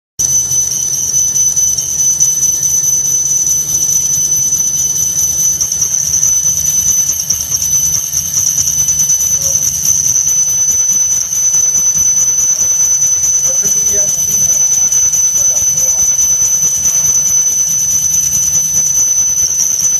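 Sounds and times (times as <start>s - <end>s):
lathe cutting high-pitched tone: 0.2s - 19.9s
machine low hum: 0.2s - 19.9s.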